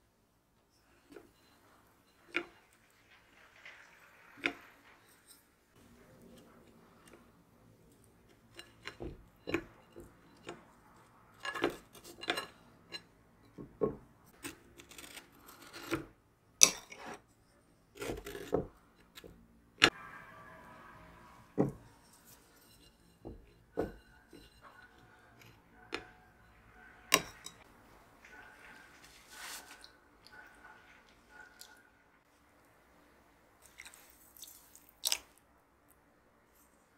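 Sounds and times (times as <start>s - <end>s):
spoon tapping and scraping plate: 7.9s - 14.0s, 21.6s - 27.7s.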